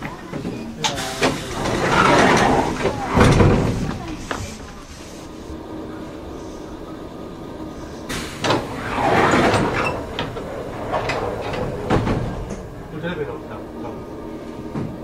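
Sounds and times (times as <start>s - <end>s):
sliding doors rushing: 0.0s - 15.0s
train door hiss: 0.8s - 5.5s, 7.8s - 12.6s.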